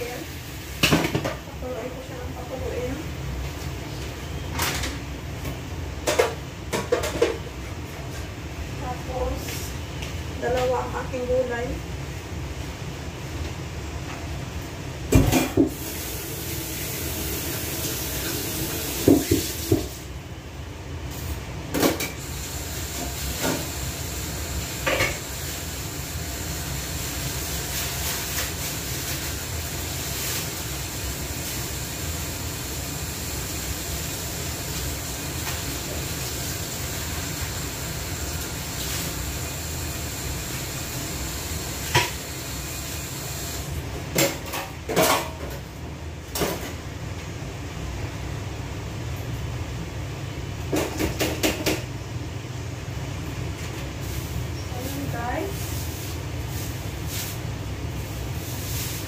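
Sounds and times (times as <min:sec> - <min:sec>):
knocks and clatters on a counter: 0:19.0 - 0:19.9, 0:50.7 - 0:51.9.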